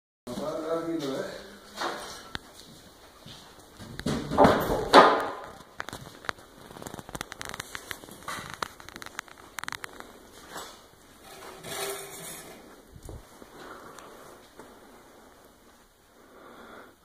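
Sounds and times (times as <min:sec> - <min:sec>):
footsteps: 0:00.3 - 0:15.9.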